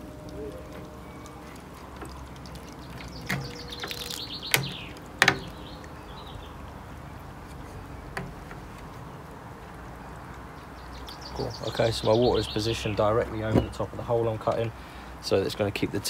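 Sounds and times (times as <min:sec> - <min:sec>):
bird chirping: 0:00.0 - 0:09.3, 0:10.0 - 0:13.9
clicks and knocks on glass: 0:03.0 - 0:05.6.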